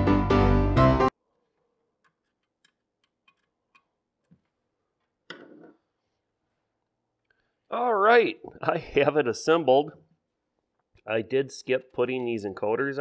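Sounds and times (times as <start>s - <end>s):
background piano music: 0.0s - 1.1s.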